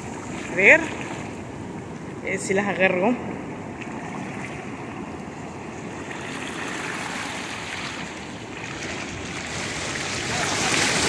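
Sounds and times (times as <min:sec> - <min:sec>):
ocean surf washing on beach: 0:00.0 - 0:11.0.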